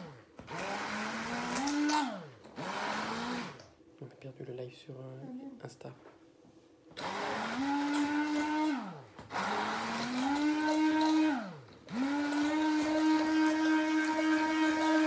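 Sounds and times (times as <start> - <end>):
stick blender whizzing: 0.0 - 3.6, 7.0 - 15.0.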